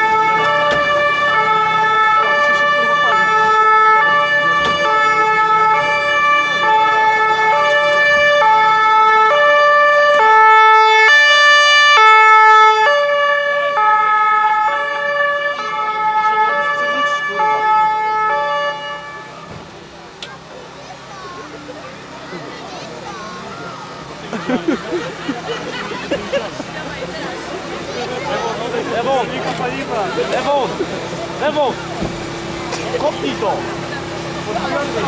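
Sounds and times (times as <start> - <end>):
ambulance two-tone siren: 0.0 - 19.6.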